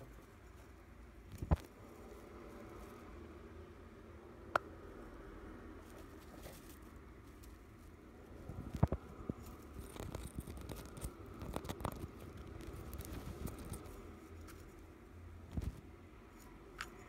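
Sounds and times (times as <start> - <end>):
taps and scratches on microphone: 8.7 - 13.8.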